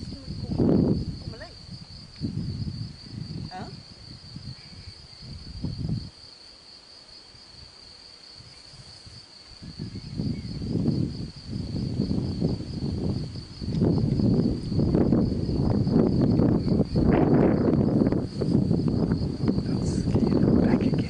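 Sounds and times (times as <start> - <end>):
high-pitched insect trill: 0.0 - 21.0.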